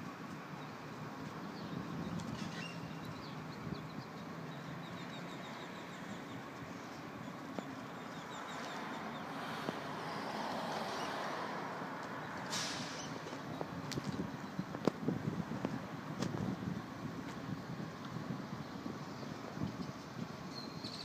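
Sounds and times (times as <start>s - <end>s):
traffic noise: 0.0s - 21.0s
short rush of noise: 12.4s - 13.2s
small bird chirping: 20.5s - 21.0s.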